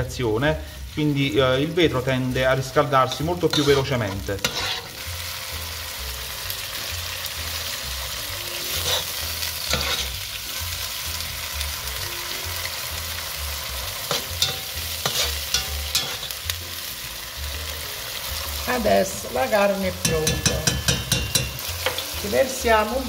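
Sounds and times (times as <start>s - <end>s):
meat sizzling in oil: 0.0s - 23.0s
utensil knocking against pot: 20.0s - 21.6s.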